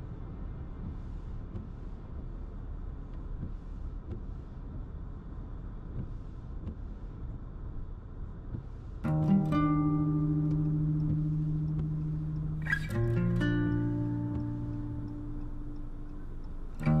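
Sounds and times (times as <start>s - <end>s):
car engine and road noise: 0.0s - 17.0s
faint ticking: 8.5s - 17.0s.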